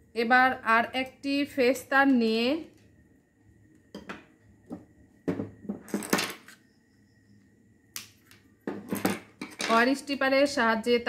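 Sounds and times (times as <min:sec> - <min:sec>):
metal tools clinking on wood: 0:08.7 - 0:09.9.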